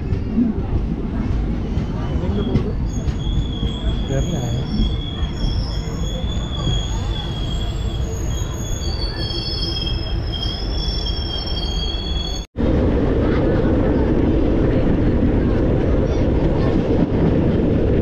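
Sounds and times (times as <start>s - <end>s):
low rumble of train: 0.0s - 18.0s
railway wheels squealing: 1.6s - 12.5s.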